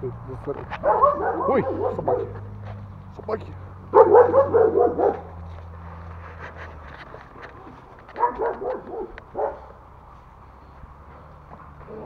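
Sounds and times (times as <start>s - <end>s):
dogs barking: 0.7s - 2.7s, 3.8s - 5.5s, 7.5s - 9.9s.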